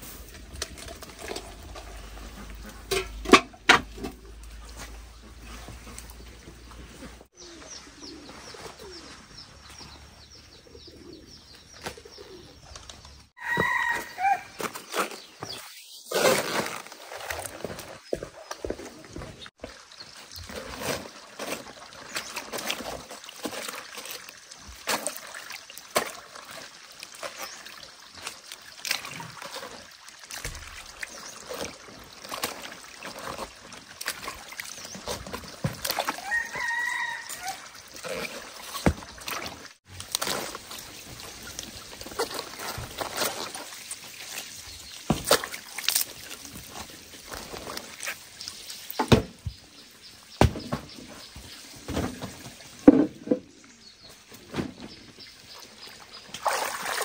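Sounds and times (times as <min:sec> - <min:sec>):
rooster crowing: 0:13.4 - 0:14.5, 0:36.2 - 0:37.6
water trickling: 0:19.6 - 0:49.0.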